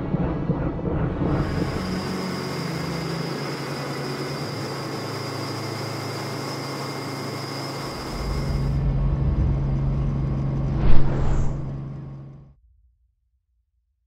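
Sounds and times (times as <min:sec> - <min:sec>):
helicopter engine and rotor hum: 0:00.1 - 0:08.8.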